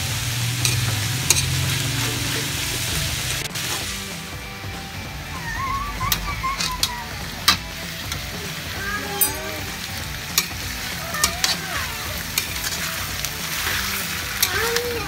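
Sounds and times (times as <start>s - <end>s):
food sizzling: 0.0s - 15.0s
metal spatula scraping wok: 0.5s - 4.4s, 6.2s - 15.0s.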